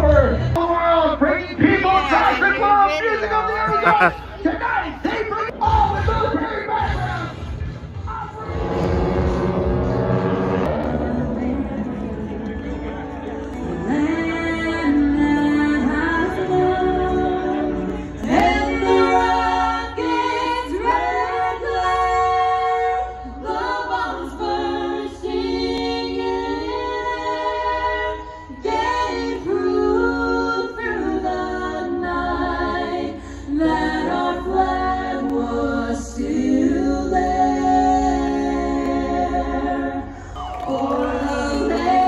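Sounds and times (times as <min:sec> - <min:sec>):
a cappella choral singing: 0:08.4 - 0:42.0.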